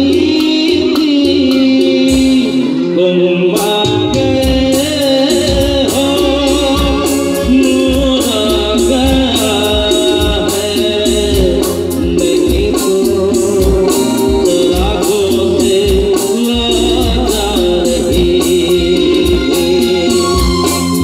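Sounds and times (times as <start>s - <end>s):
drums beating: 0.0s - 2.8s, 3.4s - 21.0s
bass: 0.0s - 21.0s
electric guitar: 0.0s - 21.0s
keyboard: 0.0s - 21.0s
male singer: 0.0s - 21.0s.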